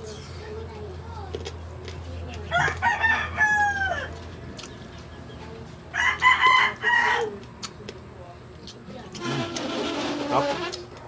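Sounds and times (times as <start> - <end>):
rooster crowing: 2.5 - 4.2, 5.9 - 7.3.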